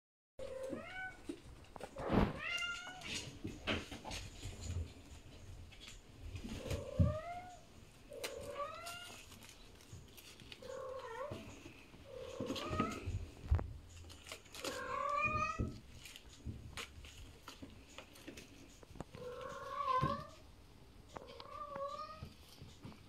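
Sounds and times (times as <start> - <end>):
cat meowing: 14.6 - 15.8, 19.2 - 20.4, 21.2 - 22.3.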